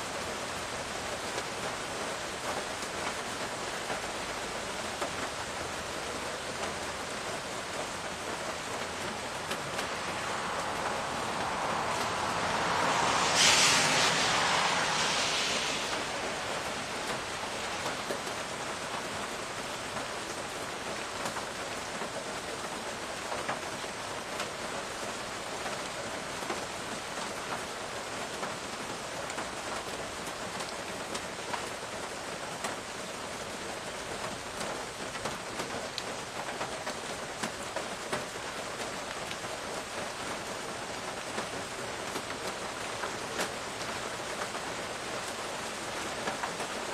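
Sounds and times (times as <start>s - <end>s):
steady rain falling: 0.0s - 46.9s
close raindrops ticking: 16.8s - 46.9s.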